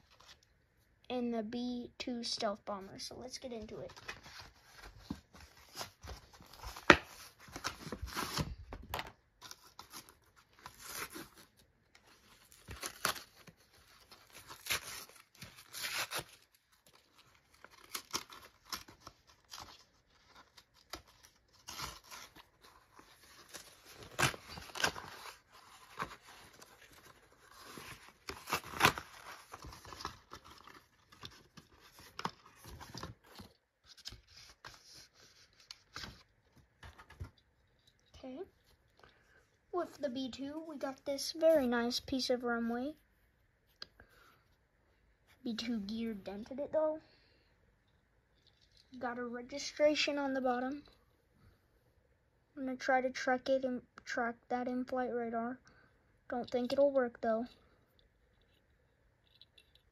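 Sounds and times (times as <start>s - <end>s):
packaging tearing and rustling: 9.4s - 36.2s.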